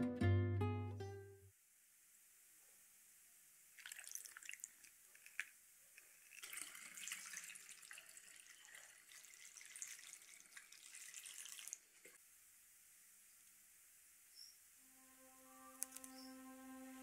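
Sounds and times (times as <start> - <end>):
liquid pouring through funnel: 3.8 - 12.2.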